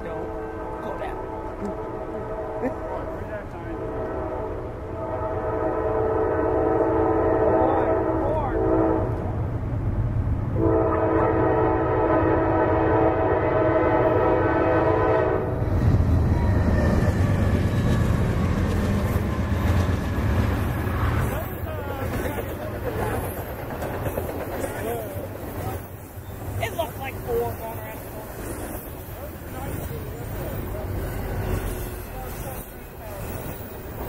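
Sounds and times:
low rumble of passing locomotives: 0.0s - 34.0s
locomotive air horn blasts: 0.2s - 9.3s, 10.6s - 15.6s.

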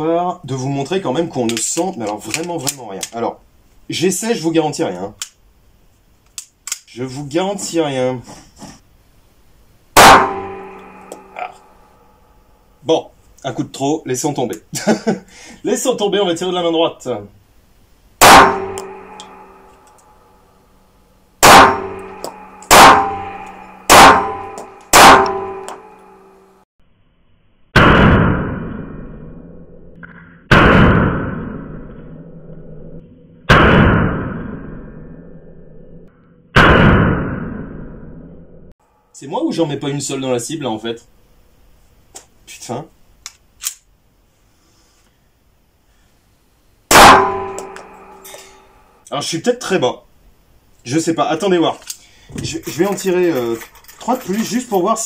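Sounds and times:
pistol shots: 10.0s - 11.2s, 18.2s - 19.7s, 21.4s - 25.9s, 46.9s - 48.2s
metallic ringing echo: 10.0s - 12.8s, 18.2s - 26.6s, 47.0s - 49.0s.

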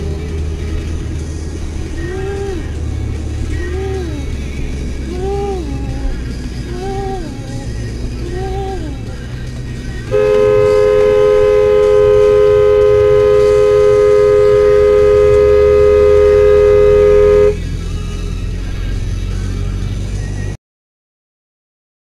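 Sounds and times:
road and engine rumble: 0.0s - 20.6s
car horn long blast: 10.1s - 17.6s.

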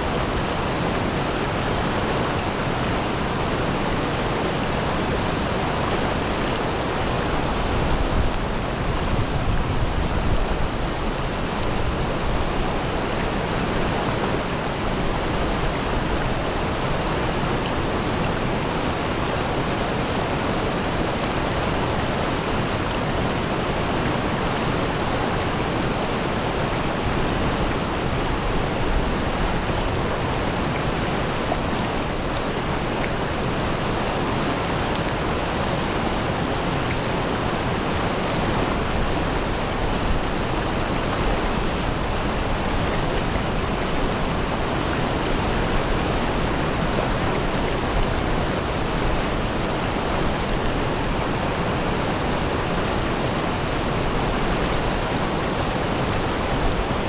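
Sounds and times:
stream flowing over rocks: 0.0s - 57.0s.

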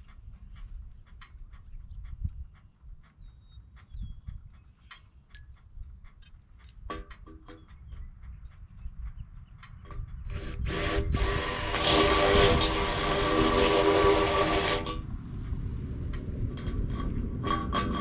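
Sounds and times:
power drill boring through metal: 10.3s - 15.0s.

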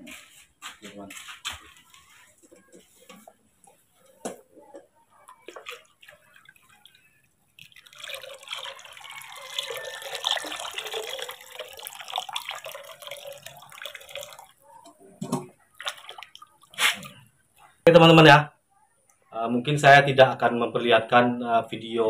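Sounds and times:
water pouring into a plastic basin: 5.1s - 17.3s.

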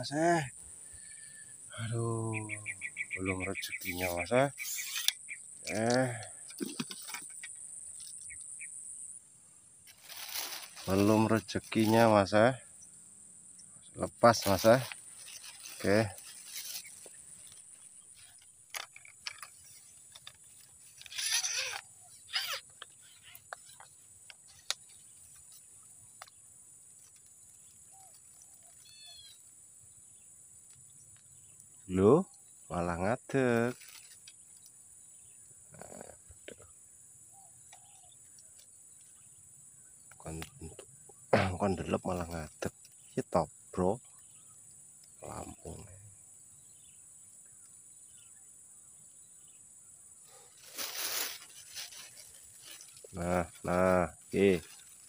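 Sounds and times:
insects chorus: 0.0s - 55.0s
bird call: 0.8s - 8.7s, 21.0s - 23.9s.

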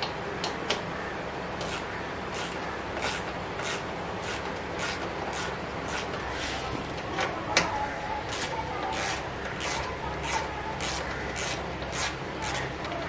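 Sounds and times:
ratchet wrench rasping: 1.6s - 6.2s, 8.3s - 12.7s.

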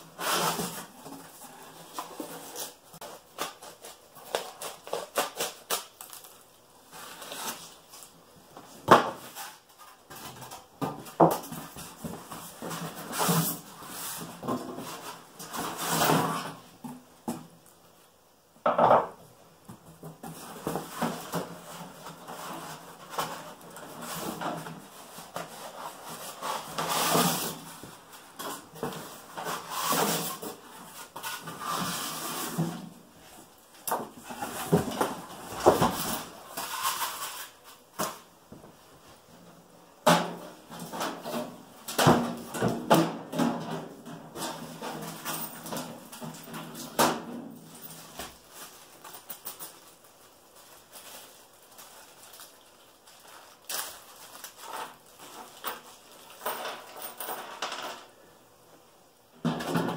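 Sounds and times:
cardboard flaps rustling and scraping: 0.0s - 16.8s, 20.0s - 39.2s.

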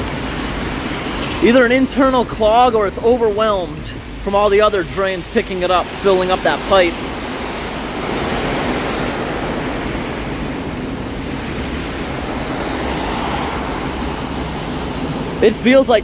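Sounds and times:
cars hissing on wet road: 0.0s - 3.0s, 5.2s - 10.2s, 11.1s - 15.4s
heavy rain: 0.0s - 16.0s.

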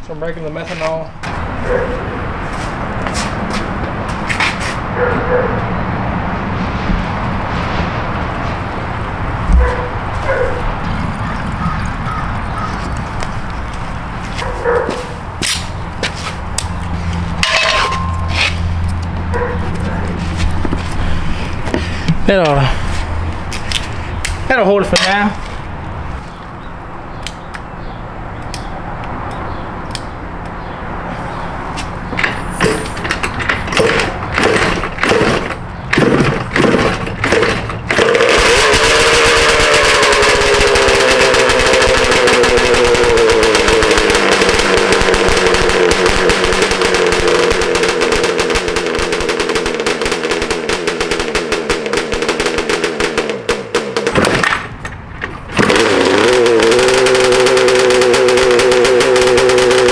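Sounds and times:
two-stroke engine running: 33.0s - 54.2s, 55.5s - 59.9s.

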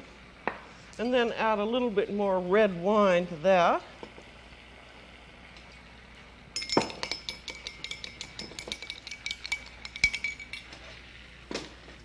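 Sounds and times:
spoon clinking against glass: 6.6s - 10.8s.

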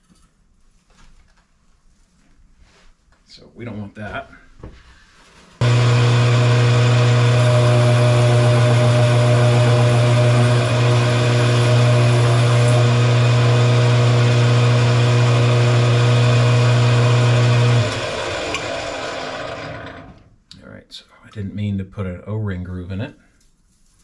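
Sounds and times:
metal lathe motor hum: 5.6s - 20.2s.

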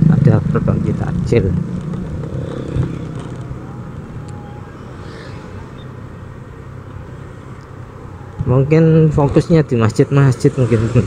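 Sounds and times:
scooter engine cruising: 0.0s - 8.2s
road noise: 0.0s - 11.0s.

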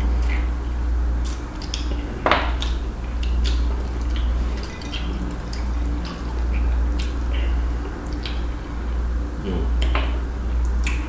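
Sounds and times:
chewing and lip smacks: 0.0s - 11.0s
steady low hum: 0.0s - 11.0s.

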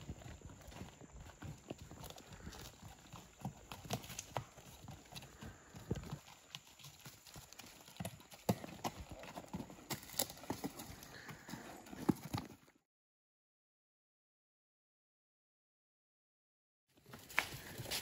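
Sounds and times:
hoofbeats on rocky trail: 0.0s - 12.8s, 17.0s - 18.0s.

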